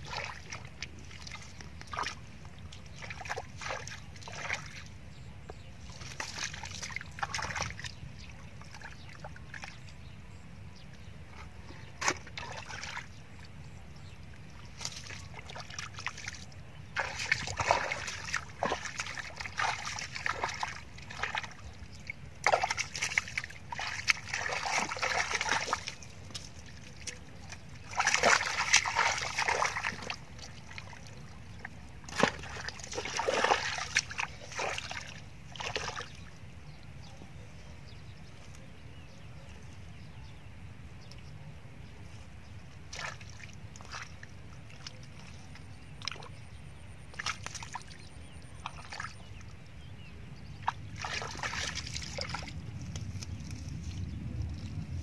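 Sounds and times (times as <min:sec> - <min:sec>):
feet squelching in mud: 0:00.0 - 0:04.9, 0:05.9 - 0:08.0, 0:11.4 - 0:13.1, 0:14.6 - 0:36.3, 0:42.9 - 0:46.4, 0:47.1 - 0:49.4, 0:50.5 - 0:55.0.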